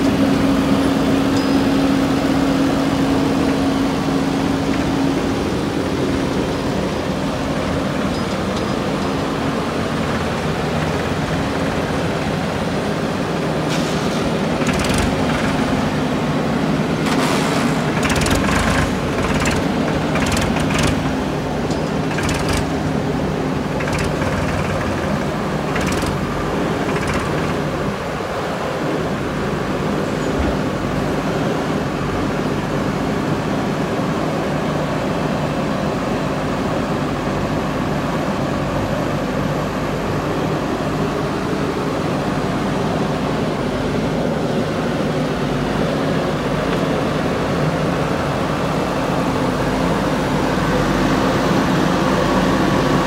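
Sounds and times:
tractor engine running: 0.0 - 34.6
backhoe loader diesel engine: 0.0 - 53.0
sharp metal clanks and rattles: 14.6 - 15.8, 17.1 - 23.0, 23.7 - 27.8.

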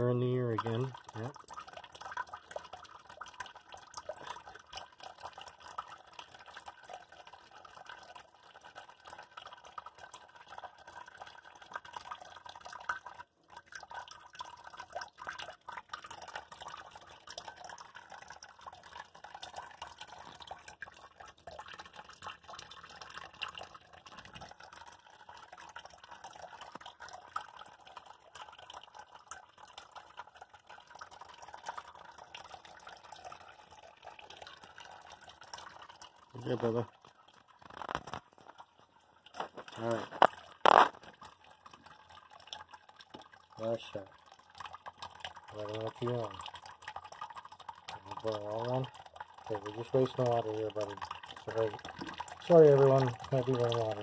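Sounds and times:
tap water splashing into sink: 36.3 - 38.7, 39.3 - 46.4, 47.7 - 54.0.

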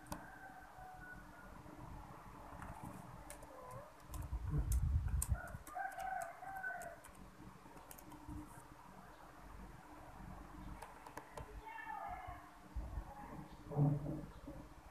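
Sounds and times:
laptop keys clicking: 0.0 - 0.2, 2.6 - 8.5, 10.8 - 11.5.

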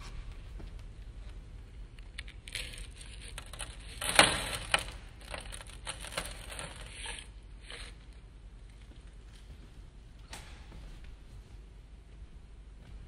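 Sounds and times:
plastic pieces pattering on metal: 2.2 - 7.2.

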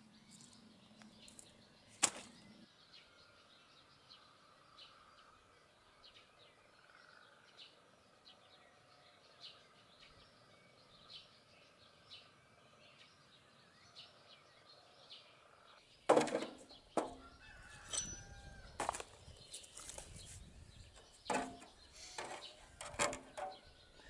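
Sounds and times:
small birds chirping: 0.0 - 24.0
hatchet chopping firewood: 16.1 - 17.2, 21.3 - 23.6
distant farmyard fowl: 17.0 - 19.0.

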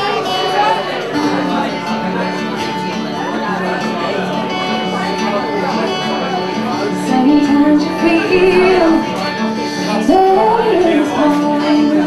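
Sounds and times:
fingerpicked acoustic guitar: 0.0 - 12.0
woman singing: 7.0 - 9.2, 9.8 - 12.0.

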